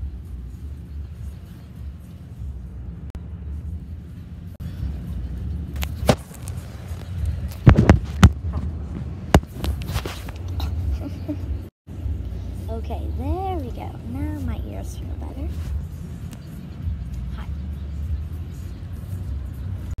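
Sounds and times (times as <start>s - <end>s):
car road rumble: 0.0s - 20.0s.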